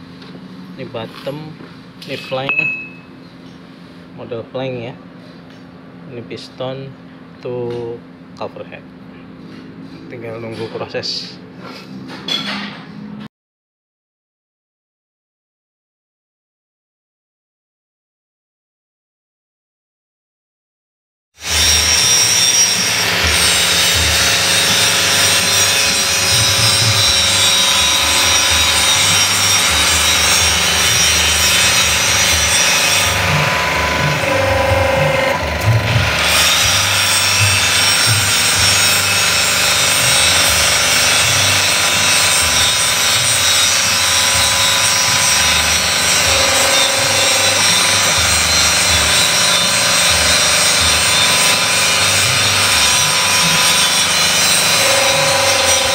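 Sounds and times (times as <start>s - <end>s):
hydraulic pump whirring and hissing: 21.4s - 55.9s.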